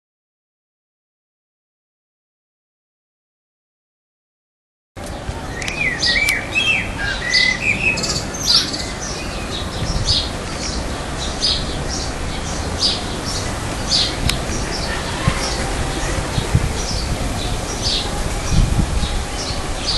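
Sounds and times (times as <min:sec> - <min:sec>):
songbirds chirping: 0:05.0 - 0:19.9
whistled bird notes: 0:05.5 - 0:09.4.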